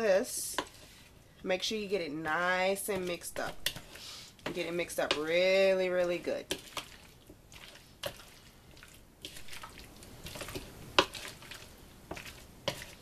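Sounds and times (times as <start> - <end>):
wet squishing and scraping: 0.5 - 1.3, 2.8 - 13.0.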